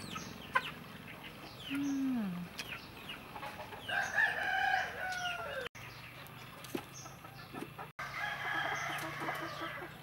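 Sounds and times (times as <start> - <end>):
chicks peeping: 0.0 - 8.0
rooster crowing: 3.9 - 5.7, 8.0 - 10.0.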